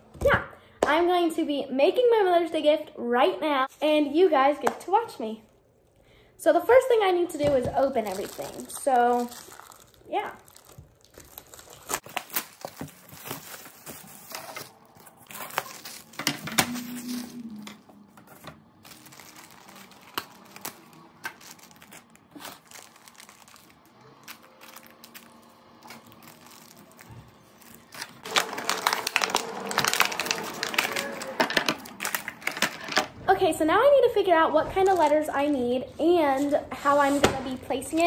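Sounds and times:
plastic packaging crinkling: 7.7s - 33.1s.

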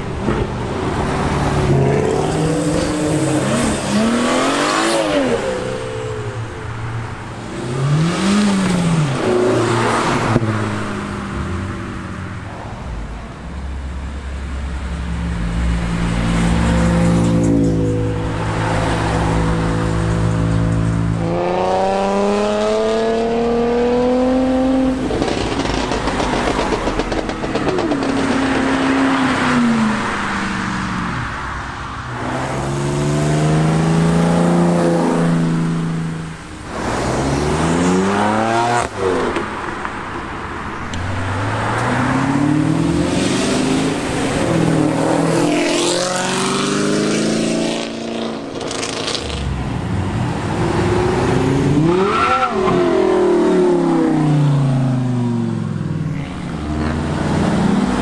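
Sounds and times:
cars accelerating at full throttle: 0.0s - 58.0s.

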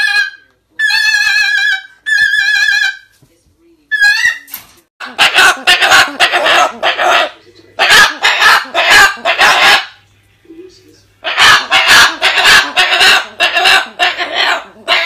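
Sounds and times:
cockatoo squawking and babbling: 0.0s - 3.2s, 3.9s - 10.0s, 11.2s - 15.0s.

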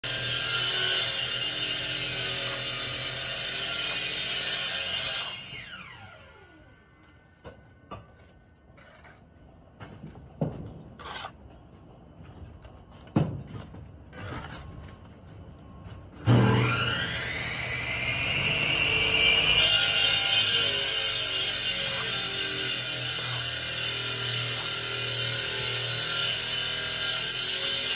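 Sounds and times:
power cutting tool whining: 16.3s - 27.9s.

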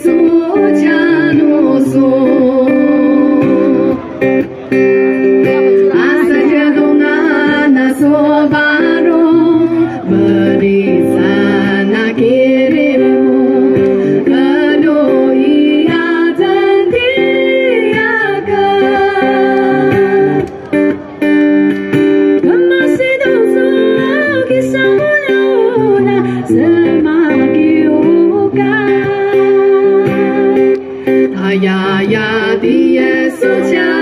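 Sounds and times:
woman singing: 0.0s - 4.3s, 5.4s - 20.5s, 22.4s - 34.0s
plucked acoustic guitar: 0.0s - 34.0s.

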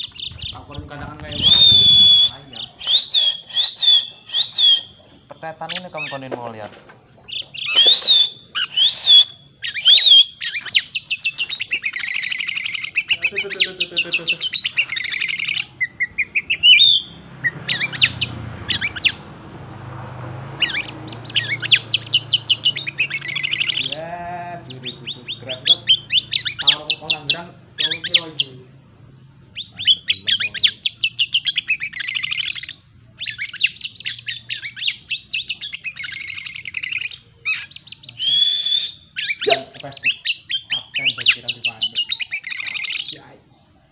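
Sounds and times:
bird singing trills and whistles: 0.0s - 19.3s, 20.5s - 28.6s, 29.2s - 43.8s.

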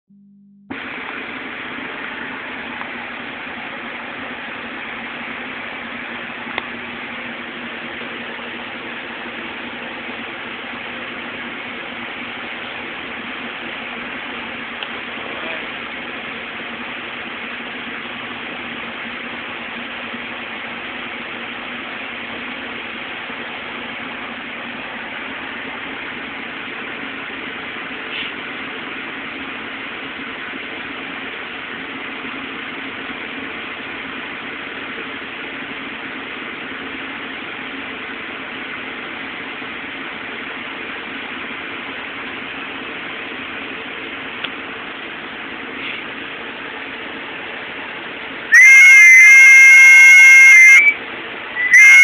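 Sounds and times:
faint low hum: 0.1s - 0.8s.

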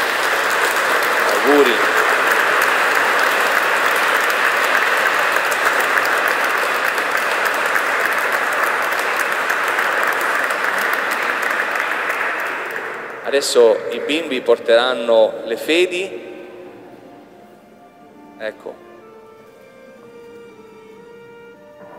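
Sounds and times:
congregation clapping: 0.0s - 17.3s.

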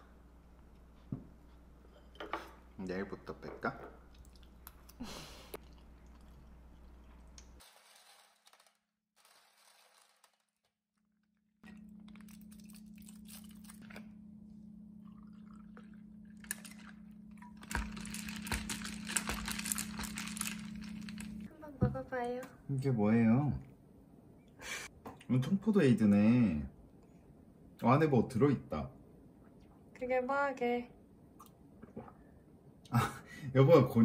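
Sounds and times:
liquid pouring: 5.6s - 8.3s, 11.6s - 14.0s, 15.0s - 21.5s.

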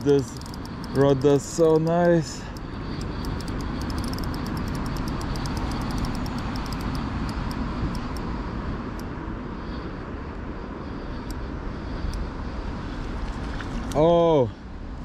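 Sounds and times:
fishing reel clicking: 0.1s - 8.2s.

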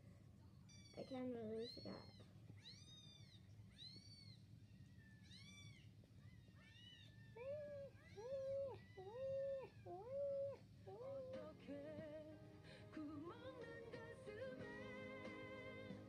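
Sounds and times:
cats meowing through speaker: 0.7s - 11.5s.

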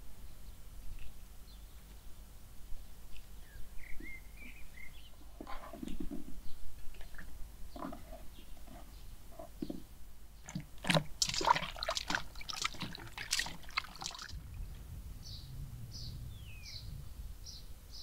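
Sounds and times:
water splashing and pouring: 10.4s - 14.6s
low steady rumble: 13.0s - 18.0s
small bird chirping: 14.3s - 18.0s.

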